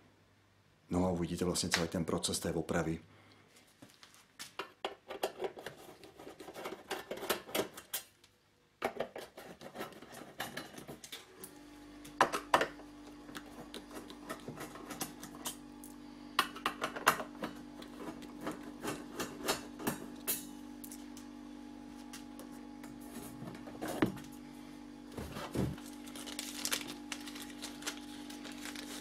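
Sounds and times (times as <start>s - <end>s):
steady low hum: 11.4s - 29.0s.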